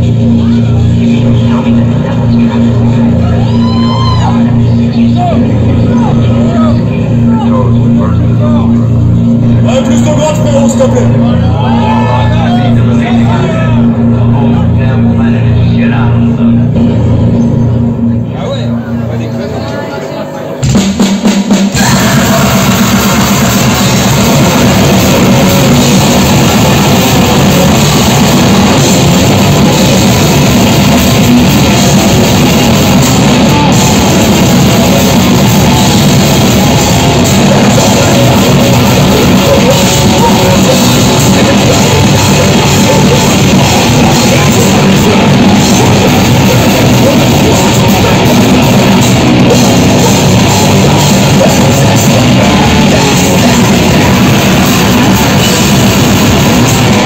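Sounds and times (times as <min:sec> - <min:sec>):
pounding drum kit: 0:00.0 - 0:19.6, 0:20.6 - 0:57.0
distorted guitar and bass: 0:00.0 - 0:57.0
shouted vocals: 0:03.2 - 0:07.7, 0:11.2 - 0:14.1, 0:21.7 - 0:25.7.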